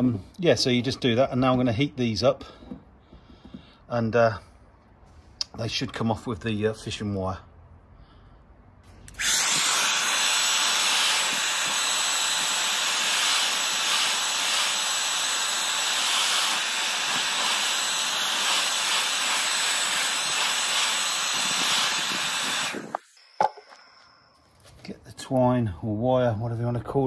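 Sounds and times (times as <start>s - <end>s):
hairdryer blowing: 9.1s - 24.1s.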